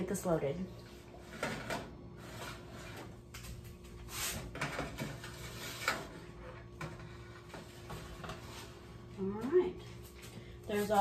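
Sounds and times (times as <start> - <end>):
wire trays scraping and clicking: 4.2 - 8.5.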